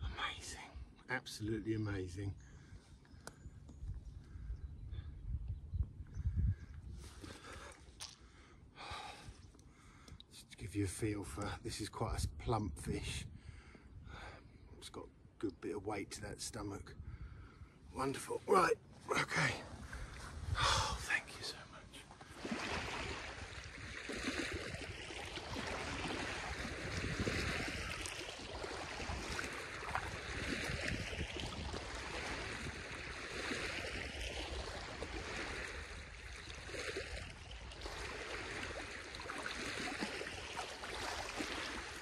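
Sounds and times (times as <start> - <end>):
lake water lapping: 6.2 - 10.4, 17.0 - 42.0.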